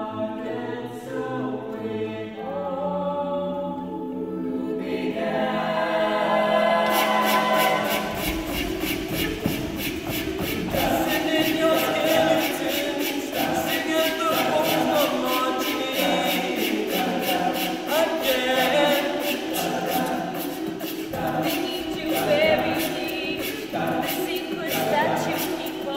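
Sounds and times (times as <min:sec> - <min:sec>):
a cappella group singing: 0:00.0 - 0:25.9
vocal percussion beat: 0:06.8 - 0:25.9.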